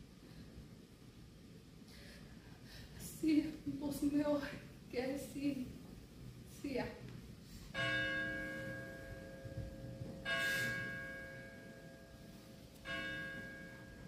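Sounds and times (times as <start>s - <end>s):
church bell tolling: 7.7s - 14.0s.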